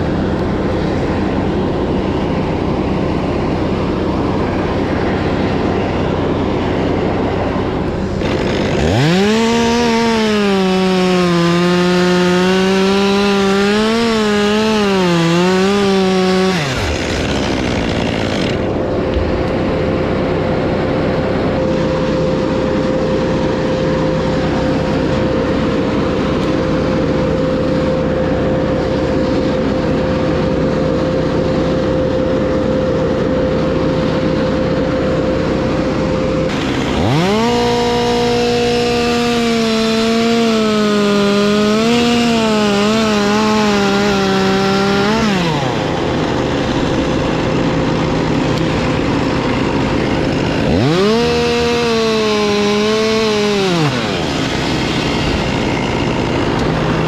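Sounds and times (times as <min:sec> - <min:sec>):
steady hum: 0:00.0 - 0:52.5
steady engine running: 0:00.0 - 0:57.0
chainsaw cutting wood: 0:07.8 - 0:19.6, 0:36.3 - 0:57.0.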